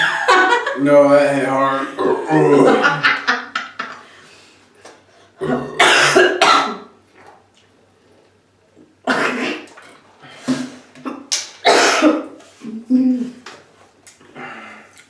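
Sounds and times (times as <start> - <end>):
harsh coughing: 5.4 - 6.9, 9.0 - 9.8, 10.5 - 12.4.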